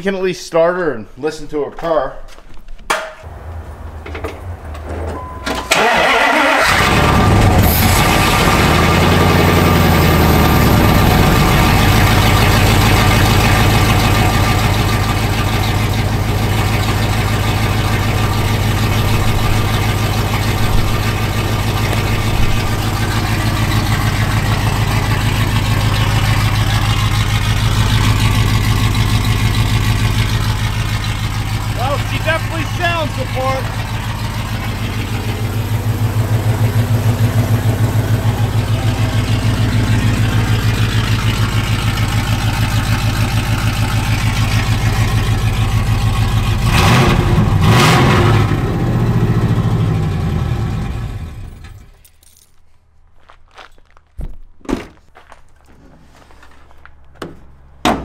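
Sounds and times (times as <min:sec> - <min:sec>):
engine cranking on starter: 0:04.8 - 0:48.6
loud engine idle: 0:05.7 - 0:51.8.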